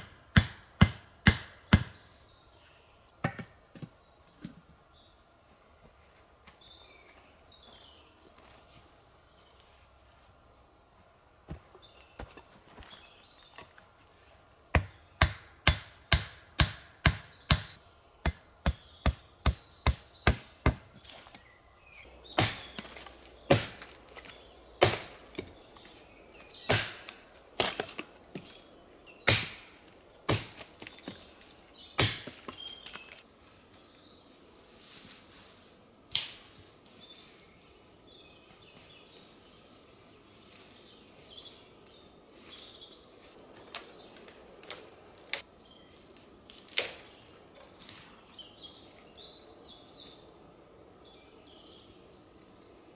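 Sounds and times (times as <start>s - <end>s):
wood being chopped: 0.0s - 2.0s, 3.2s - 3.5s, 14.7s - 21.0s, 22.4s - 25.5s, 26.6s - 28.5s, 29.2s - 31.2s, 32.0s - 33.2s.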